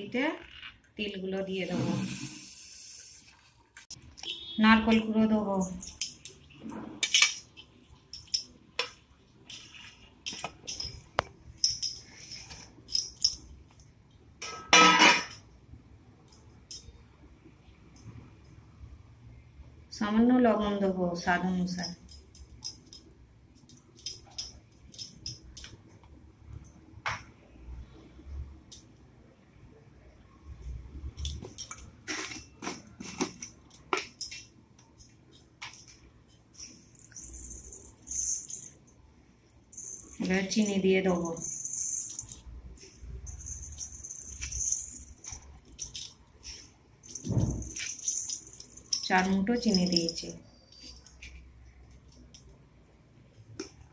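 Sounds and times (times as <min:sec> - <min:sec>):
utensil clinking against metal bowl: 0:04.9 - 0:13.4.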